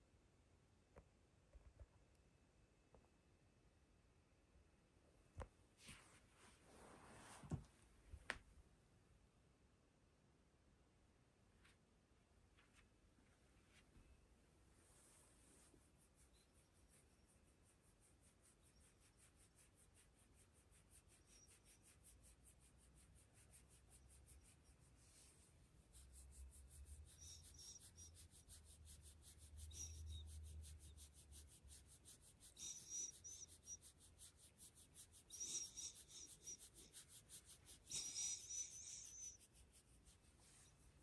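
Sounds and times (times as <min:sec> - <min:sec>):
rubbing against dog fur: 0:14.8 - 0:41.0
soft hissy brushes: 0:14.8 - 0:41.0.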